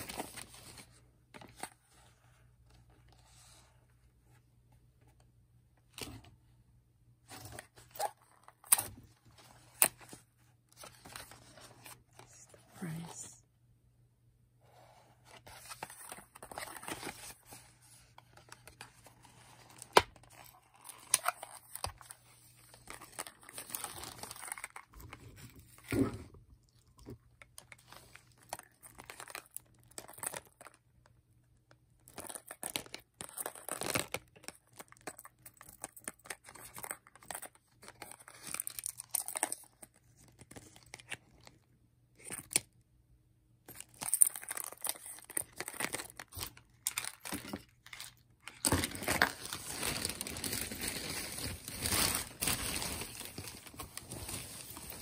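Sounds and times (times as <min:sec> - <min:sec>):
plastic packaging crinkling: 0:43.8 - 0:55.0.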